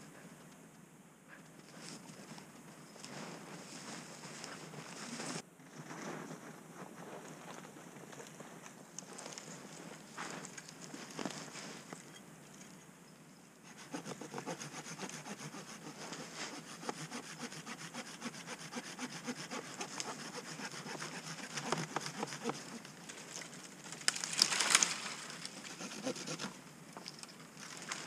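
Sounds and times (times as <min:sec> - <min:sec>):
hand saw cutting wood: 0:13.7 - 0:22.9, 0:25.6 - 0:26.6
tree trunk falling: 0:24.0 - 0:25.4.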